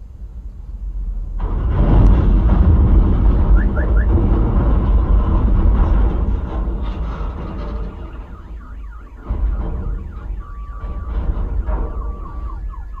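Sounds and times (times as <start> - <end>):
low rumble: 0.0 - 13.0
electronic siren falling sweeps: 7.8 - 13.0
steady high tone: 7.8 - 13.0.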